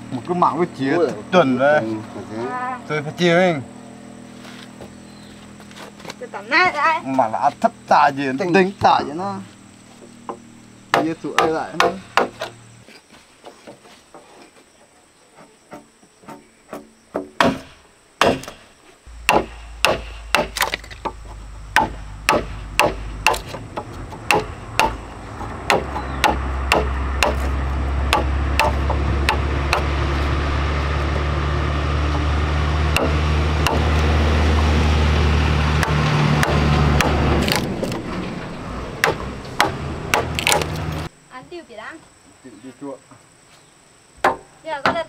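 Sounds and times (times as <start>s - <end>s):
mallet striking chisel: 16.7s - 25.0s, 25.7s - 27.5s, 28.1s - 29.9s, 32.9s - 33.9s
low engine drone: 19.1s - 41.1s.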